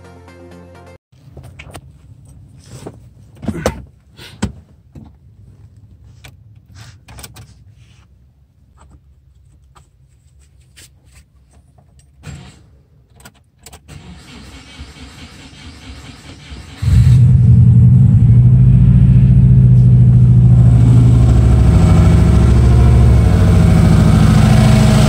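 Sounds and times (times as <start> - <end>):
dense steady noise: 17.5 - 25.0.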